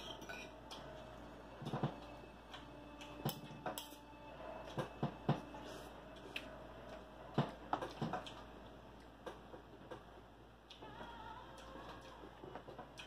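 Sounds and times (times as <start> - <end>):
cutlery clinking on plates: 0.0 - 0.6.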